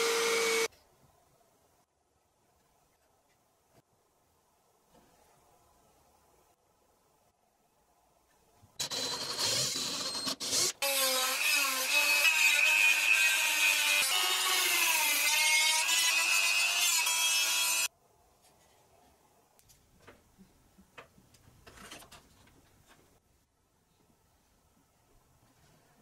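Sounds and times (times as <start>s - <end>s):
electric drill boring into plywood: 0.0s - 0.7s, 8.8s - 17.9s.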